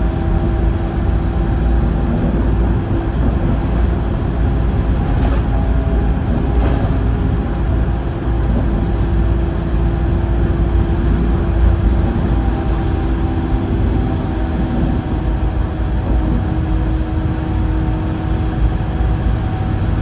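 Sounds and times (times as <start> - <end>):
bus engine drone: 0.0 - 20.0
road rumble: 0.0 - 20.0.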